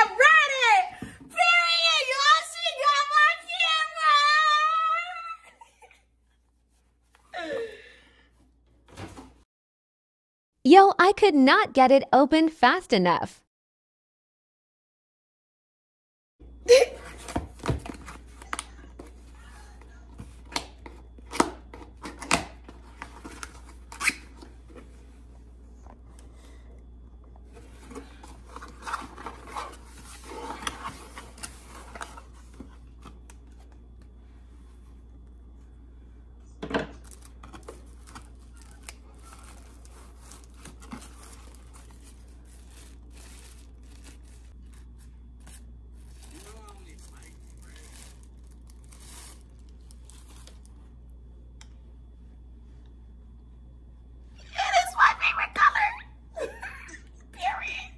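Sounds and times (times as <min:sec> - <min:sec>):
rustling paper and plastic packaging: 0:37.0 - 0:50.8.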